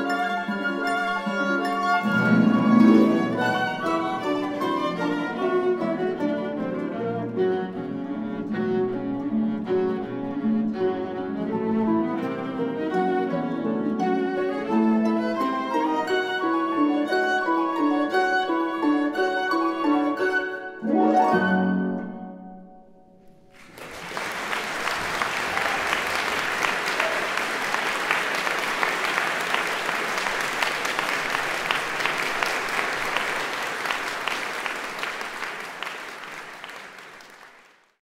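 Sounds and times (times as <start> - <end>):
flute viola and harp playing: 0.0 - 22.6
audience applause: 23.5 - 38.0.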